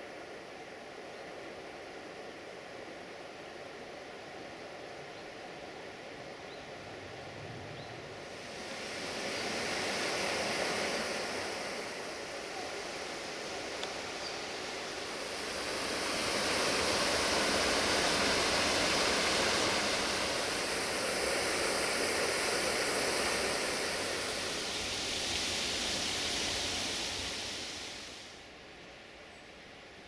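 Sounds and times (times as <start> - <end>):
waterfall rushing: 8.2 - 28.3.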